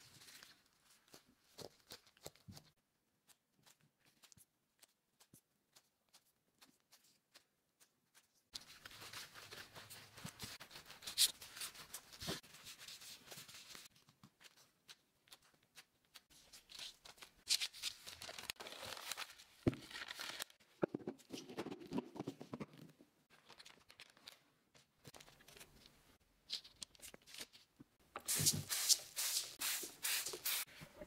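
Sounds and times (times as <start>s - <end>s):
plastic gloves rustling: 0.0s - 21.7s.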